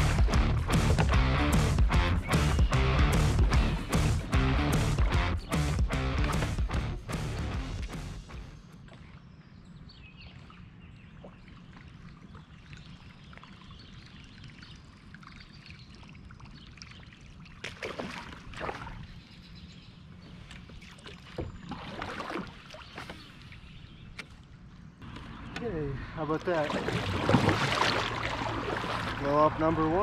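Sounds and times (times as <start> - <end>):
kayak paddle splashing in water: 0.0 - 1.8, 17.4 - 19.1, 20.5 - 23.6, 26.5 - 29.7.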